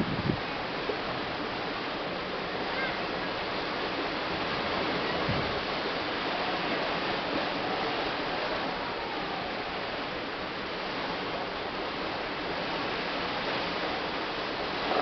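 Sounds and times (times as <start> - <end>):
wind and sea water rushing: 0.0 - 15.0.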